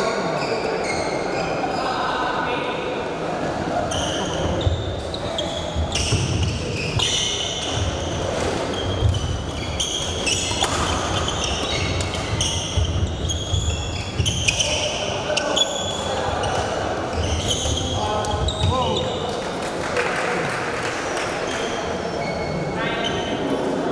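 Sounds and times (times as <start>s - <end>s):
shoes squeaking: 0.4s - 2.0s, 3.9s - 19.4s.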